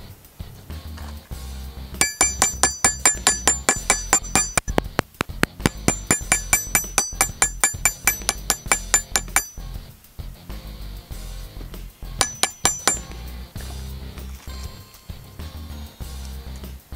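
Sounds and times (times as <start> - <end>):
hammer striking steel punch: 2.0 - 4.9, 5.5 - 9.6, 12.2 - 13.2.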